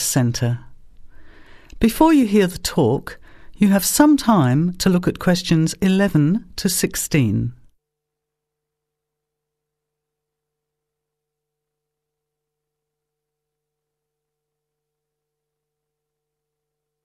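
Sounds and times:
faint steady hum: 0:00.0 - 0:07.8.

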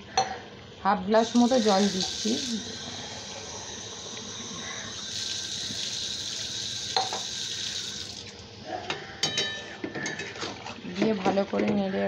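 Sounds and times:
water hissing into hot wok: 0:01.3 - 0:08.3.

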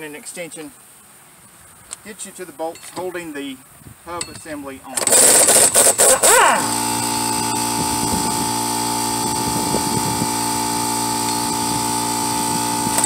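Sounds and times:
air impact wrench hammering: 0:05.0 - 0:13.0
impact wrench whine with air hiss: 0:05.0 - 0:13.0.

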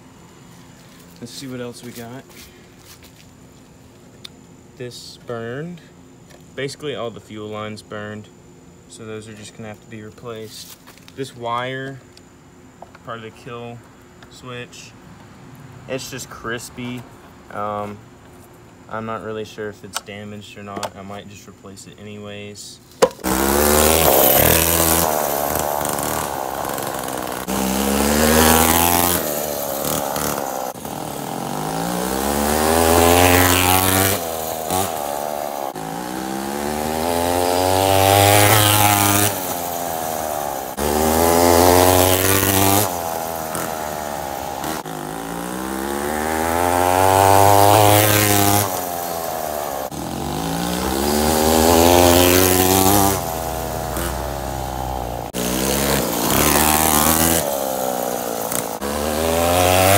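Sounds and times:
chainsaw engine revving: 0:23.1 - 0:59.9.

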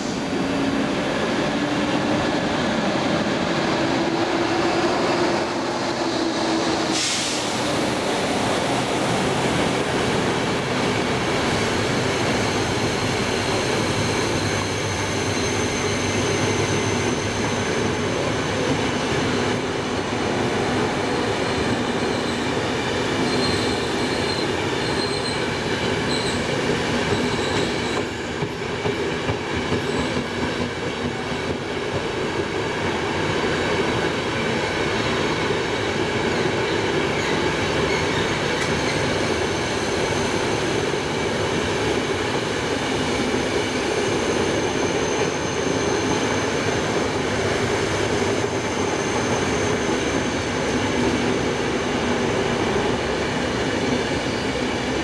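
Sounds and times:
rumble of train wheels on rail: 0:00.0 - 0:55.0
high wheel squeal: 0:12.3 - 0:19.0, 0:21.3 - 0:26.5, 0:36.3 - 0:40.4, 0:43.6 - 0:47.0.

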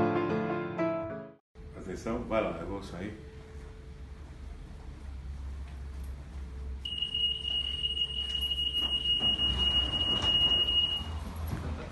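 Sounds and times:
security gate alarm tone: 0:06.8 - 0:11.2.

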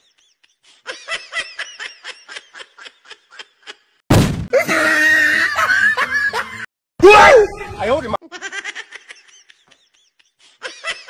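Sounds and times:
loud bang-like burst: 0:04.1 - 0:04.5.

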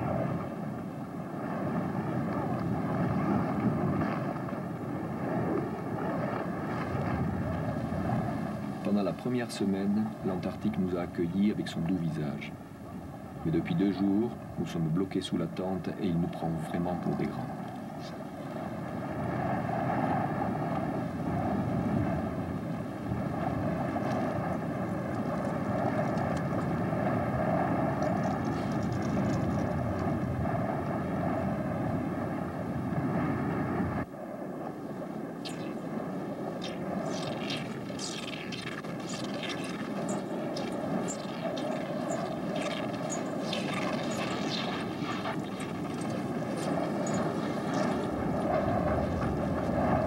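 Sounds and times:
blizzard wind blowing: 0:00.0 - 0:50.0.

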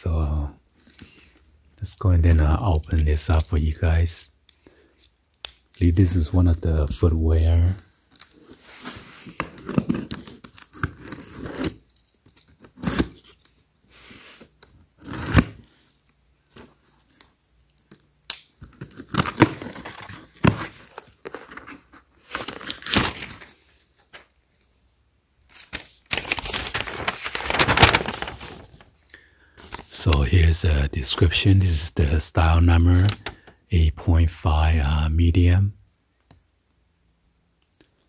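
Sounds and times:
cardboard flap pulled open: 0:25.6 - 0:28.8.

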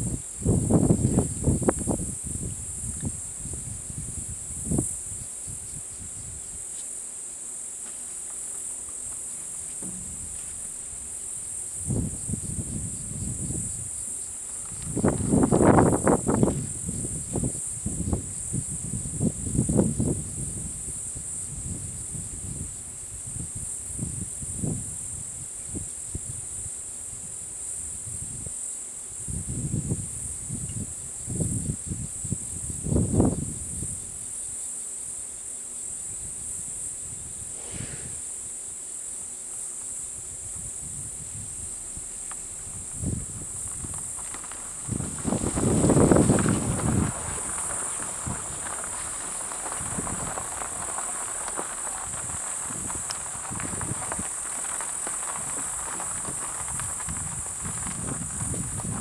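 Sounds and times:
insects chorus: 0:00.0 - 0:59.0
low rumbling noise bursts: 0:09.6 - 0:13.8, 0:40.8 - 0:59.0.

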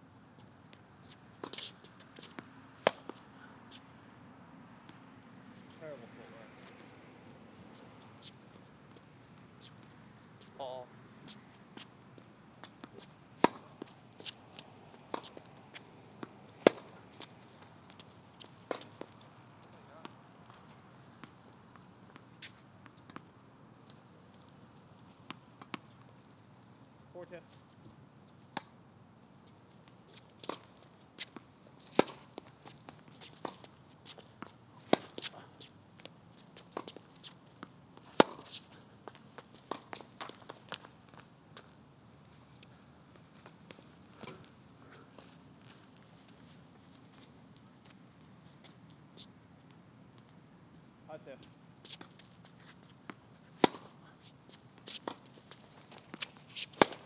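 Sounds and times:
tennis ball bouncing: 0:01.4 - 0:03.2, 0:12.6 - 0:19.2, 0:30.4 - 0:35.5, 0:36.4 - 0:40.9, 0:53.1 - 0:57.0
racket striking tennis ball: 0:02.8 - 0:03.2, 0:12.8 - 0:14.4, 0:16.2 - 0:17.0, 0:31.9 - 0:32.4, 0:34.8 - 0:35.4, 0:38.1 - 0:38.6, 0:53.5 - 0:54.0, 0:54.8 - 0:57.0
shoes scuffing on court: 0:30.1 - 0:49.3, 0:51.8 - 0:57.0.

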